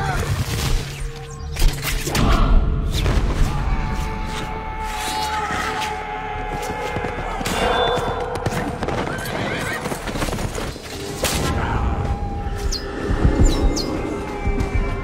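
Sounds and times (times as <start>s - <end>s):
hooves pounding: 6.4s - 11.0s, 12.7s - 15.0s
horses whinnying: 6.6s - 10.6s.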